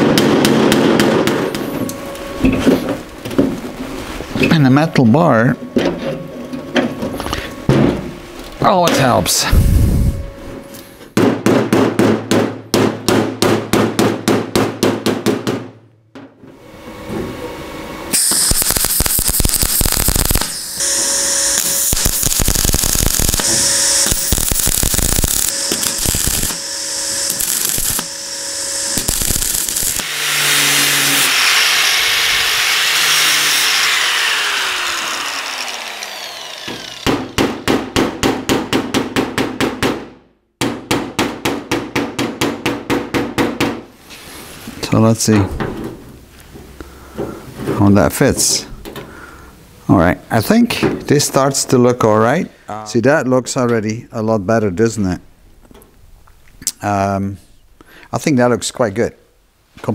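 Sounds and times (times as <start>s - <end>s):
hammer beating on steel sheet: 0.0s - 1.6s, 11.2s - 15.8s, 36.7s - 43.8s
welding crackling: 18.2s - 32.5s.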